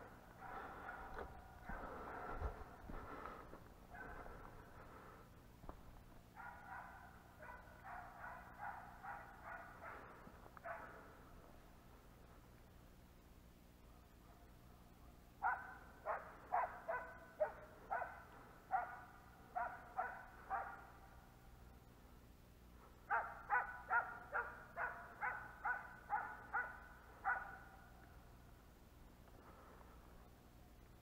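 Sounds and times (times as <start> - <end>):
dogs barking: 0.3 - 2.0, 3.9 - 4.5, 6.3 - 11.2, 15.4 - 21.2, 23.0 - 28.0.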